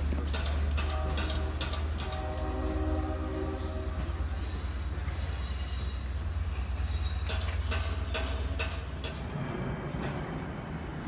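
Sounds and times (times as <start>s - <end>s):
train horn chord: 0.8s - 4.6s.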